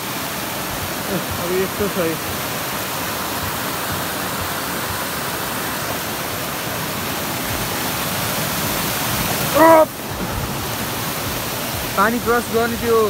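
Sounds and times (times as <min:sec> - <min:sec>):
water rushing over rocks: 0:00.0 - 0:13.0
short voice sound: 0:09.5 - 0:09.9.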